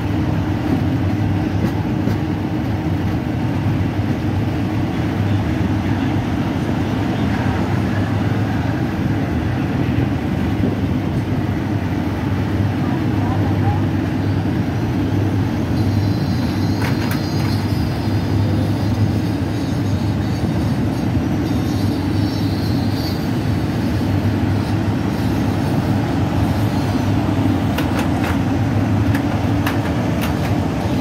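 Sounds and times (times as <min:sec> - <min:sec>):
train carriage rumbling on rails: 0:00.0 - 0:31.0.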